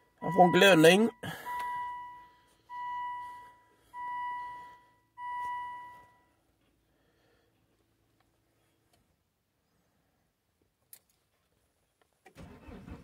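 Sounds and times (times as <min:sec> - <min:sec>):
dashboard warning chime: 0:00.1 - 0:06.4.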